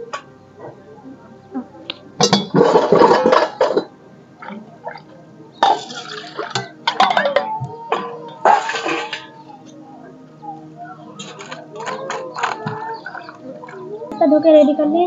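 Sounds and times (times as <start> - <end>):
steel vessels clinking: 2.2 - 5.0, 5.6 - 9.4.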